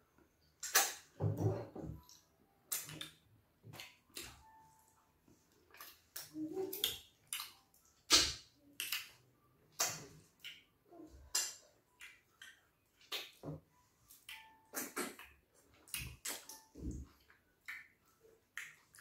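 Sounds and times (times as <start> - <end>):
wet mouth smacks: 0.6 - 1.1, 5.8 - 9.2, 14.7 - 15.3.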